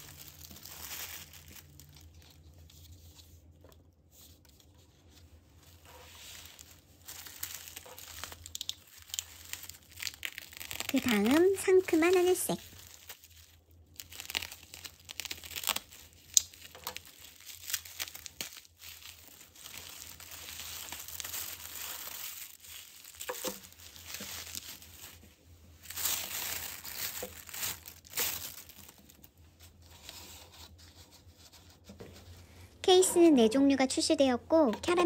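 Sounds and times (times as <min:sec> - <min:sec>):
bubble wrap crinkling: 0:00.0 - 0:35.0
sticky tape peeling: 0:07.2 - 0:12.2, 0:14.0 - 0:24.7.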